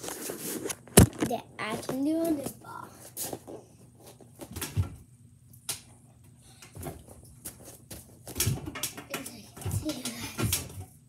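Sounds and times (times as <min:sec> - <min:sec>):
knocks and thumps on gymnastics bar: 0:08.2 - 0:10.9.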